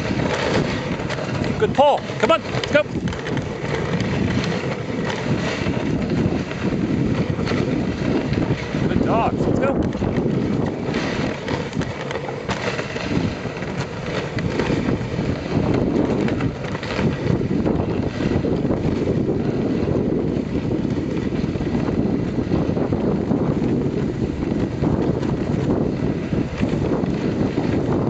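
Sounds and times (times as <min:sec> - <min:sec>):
sled gliding over snow: 0:00.0 - 0:28.0
wind buffeting microphone: 0:00.0 - 0:28.0.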